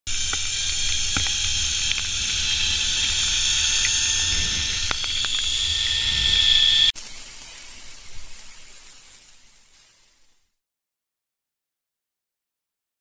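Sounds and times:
zipline trolley whining on cable: 0:00.1 - 0:07.0.

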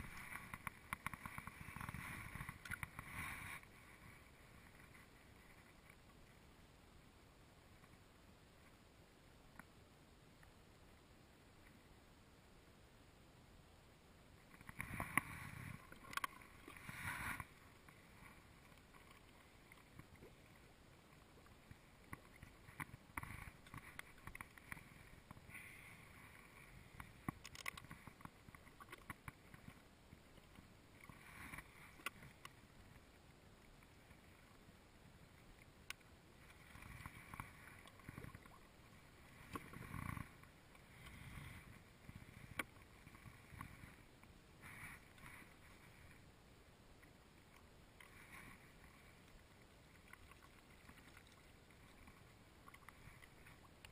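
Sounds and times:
water lapping at plastic hull: 0:00.0 - 0:06.1, 0:14.5 - 0:33.1, 0:35.6 - 0:46.2, 0:47.0 - 0:53.9.

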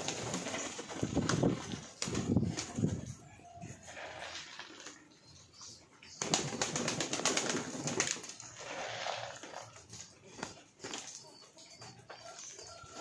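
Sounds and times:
pigeons wing flapping: 0:00.0 - 0:03.0, 0:06.2 - 0:11.2.

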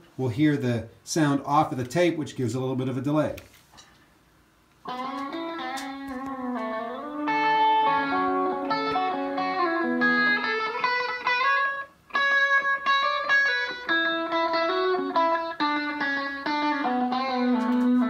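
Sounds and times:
guitar solo with tape echo: 0:04.8 - 0:18.0.

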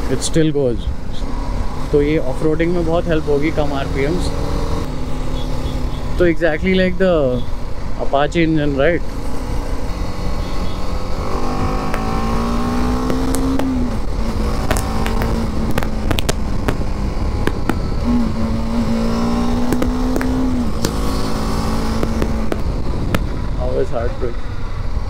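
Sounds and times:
motorcycle engine accelerating: 0:09.3 - 0:23.7
wind rush on microphone: 0:20.4 - 0:25.0.

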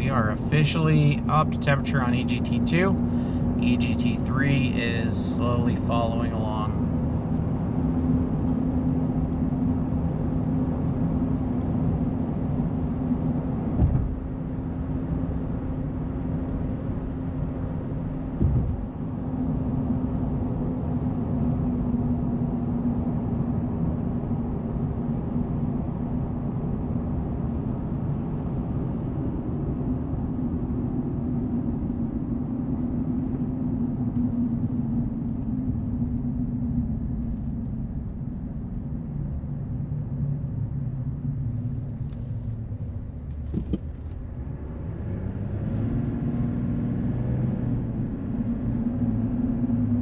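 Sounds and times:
diesel engine running: 0:00.0 - 0:12.2
road and tyre noise: 0:00.0 - 0:50.0
short thumps: 0:18.4 - 0:18.8, 0:43.4 - 0:44.2.

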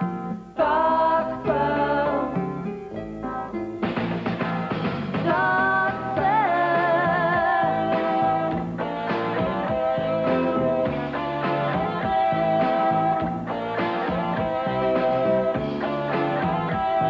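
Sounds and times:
strummed guitar chords: 0:00.0 - 0:17.0
person singing: 0:00.6 - 0:03.5, 0:05.2 - 0:08.6, 0:09.4 - 0:13.4, 0:14.0 - 0:17.0
rock band playing: 0:03.8 - 0:17.0.

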